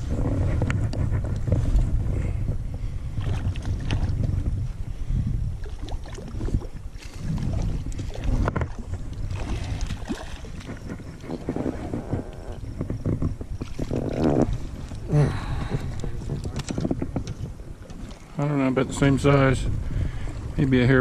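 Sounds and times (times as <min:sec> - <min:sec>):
wind rumble on microphone: 0:00.0 - 0:21.0
water splashing: 0:05.6 - 0:12.6, 0:13.6 - 0:16.8
irregular knocks and rustles: 0:10.6 - 0:15.0.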